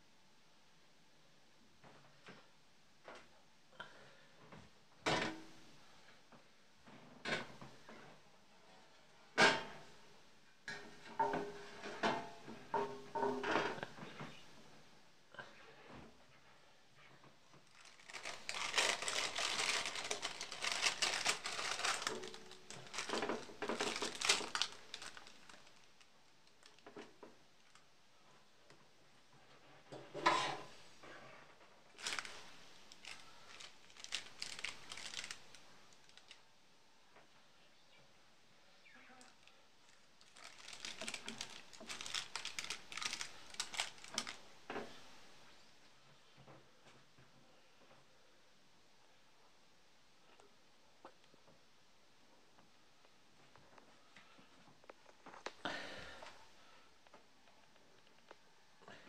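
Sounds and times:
baking paper crinkling: 17.6s - 27.8s, 31.9s - 36.4s, 39.2s - 45.1s.

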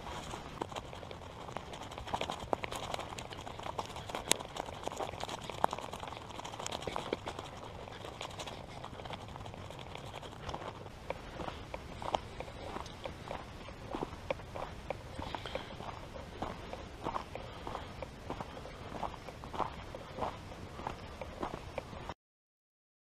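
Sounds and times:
stems crackling and snapping: 0.0s - 15.7s
footsteps through dry grass: 0.0s - 22.1s.

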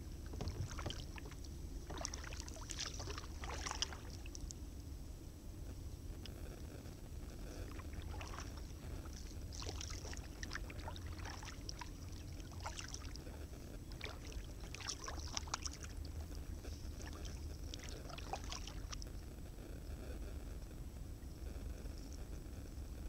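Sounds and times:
paddle splashes and drips: 0.3s - 4.5s, 7.8s - 13.2s, 13.9s - 16.4s, 17.0s - 19.0s.

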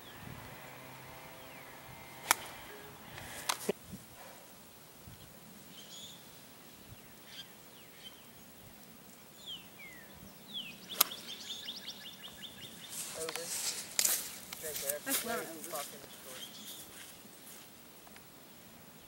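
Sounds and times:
golf club striking ball: 2.1s - 3.7s
birds whistling and chirping: 9.4s - 13.1s, 16.2s - 16.9s.

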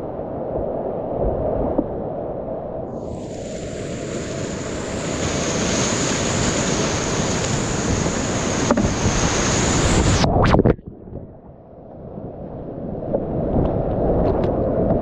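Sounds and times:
muffled underwater foam: 0.0s - 15.0s
whitewater rapids rushing: 3.0s - 10.3s.

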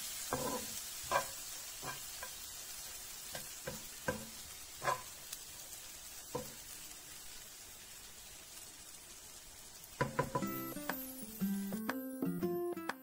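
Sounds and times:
berries sizzling in butter: 0.0s - 12.0s
spatula knocking against pan: 3.3s - 5.0s, 10.0s - 10.5s.

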